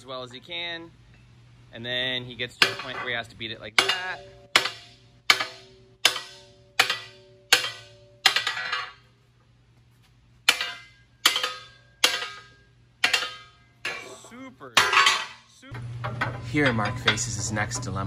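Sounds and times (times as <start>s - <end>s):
hammer striking steel plate: 2.6s - 9.1s, 10.4s - 14.2s, 14.8s - 18.0s.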